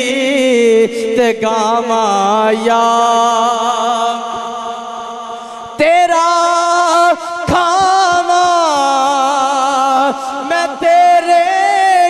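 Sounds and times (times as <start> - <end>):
man singing into microphone: 0.0 - 12.0.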